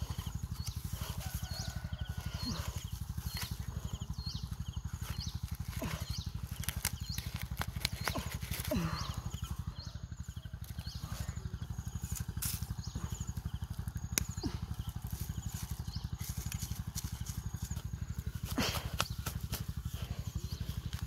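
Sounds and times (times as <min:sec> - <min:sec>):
knife scraping dry soil: 0:00.0 - 0:04.0, 0:04.9 - 0:09.6, 0:10.7 - 0:13.2
engine throbbing low: 0:00.0 - 0:21.0.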